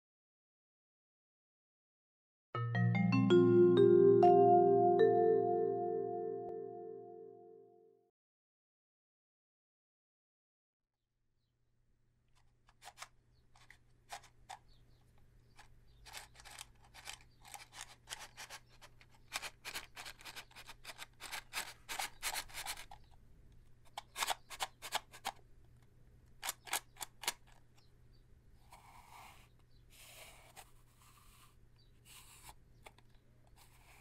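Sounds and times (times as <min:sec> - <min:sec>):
matchbox clicking and rattling: 0:12.4 - 0:14.8, 0:15.5 - 0:23.2, 0:23.8 - 0:25.4, 0:26.3 - 0:27.8.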